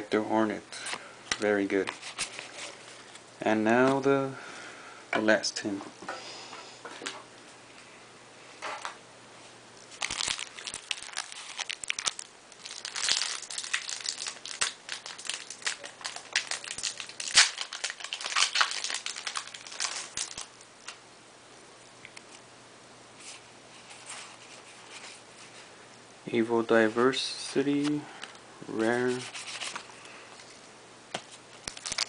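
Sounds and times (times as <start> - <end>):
foil pack tearing and crinkling: 9.9 - 20.5, 31.6 - 32.0.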